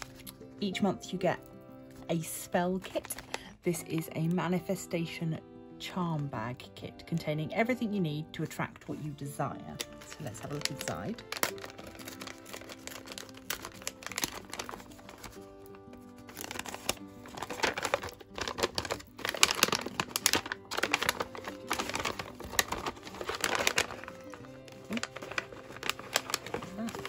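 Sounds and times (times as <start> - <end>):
paper packaging crinkling: 0.0 - 0.5, 1.8 - 4.0, 8.9 - 27.0
soft background music: 0.0 - 27.0.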